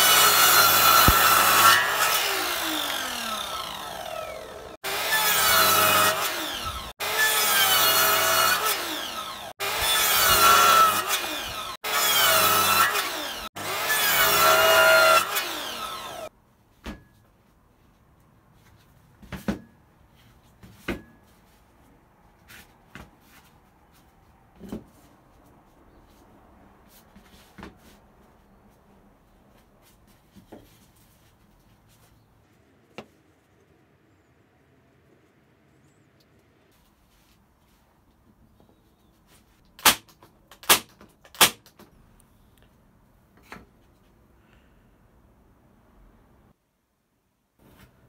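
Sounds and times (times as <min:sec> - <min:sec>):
nail gun firing: 0:00.8 - 0:01.8, 0:39.8 - 0:41.8.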